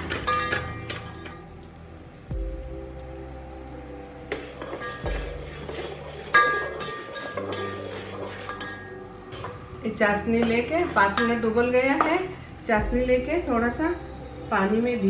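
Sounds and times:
metal spoon clinking on pot: 0.0s - 1.5s, 4.3s - 9.6s, 10.2s - 12.4s
soft background music: 0.0s - 15.0s.

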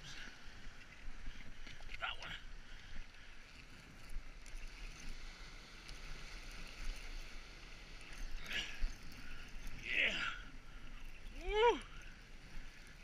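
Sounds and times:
ocean surf washing over rocks: 3.9s - 13.0s.

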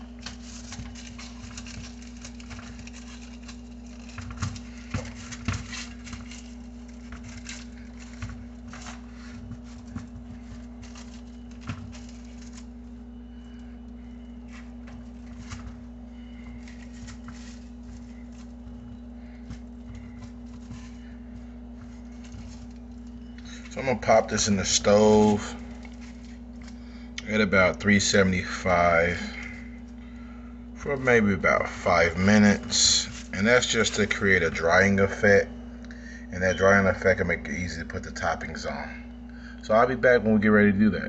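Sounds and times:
paper crinkling: 0.0s - 27.1s, 31.0s - 35.1s
spoon patting dough: 0.0s - 27.2s
steady low hum: 0.0s - 41.0s.

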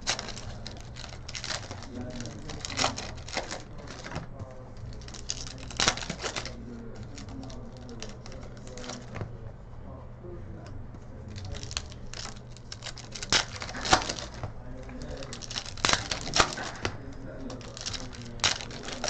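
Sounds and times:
card pack wrappers crinkling: 0.0s - 9.3s, 11.2s - 19.0s
steady low hum: 0.0s - 19.0s.

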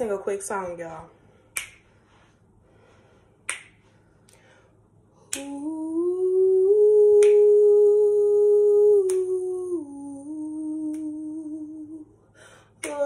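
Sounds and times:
finger snaps: 1.5s - 2.0s, 3.4s - 4.5s, 5.2s - 5.7s, 7.1s - 7.6s, 9.0s - 9.4s, 10.8s - 11.3s, 12.8s - 13.0s
woman humming: 5.3s - 12.2s.

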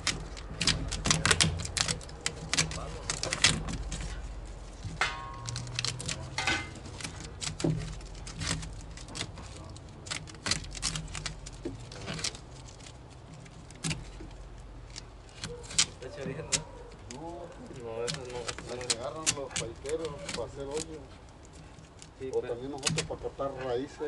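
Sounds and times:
hand tools clicking and clinking: 0.0s - 17.2s.

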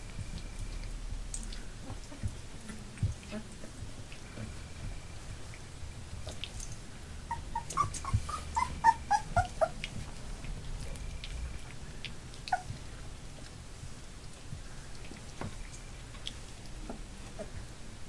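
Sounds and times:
puppies whimpering and yipping: 7.3s - 10.0s, 12.4s - 12.8s.

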